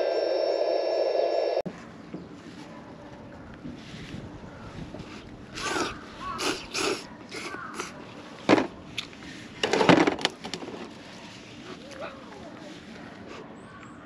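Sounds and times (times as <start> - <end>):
man slurping noodles: 5.5 - 8.0.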